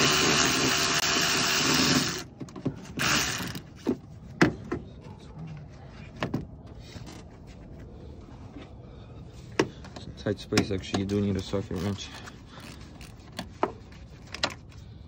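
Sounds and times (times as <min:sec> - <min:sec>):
cordless power tool motor running: 0:00.0 - 0:02.3, 0:03.0 - 0:03.7.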